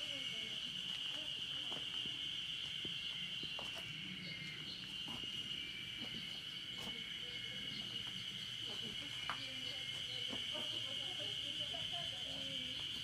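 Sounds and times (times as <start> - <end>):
insects droning: 0.0 - 13.0
soft footsteps on path: 0.8 - 10.7.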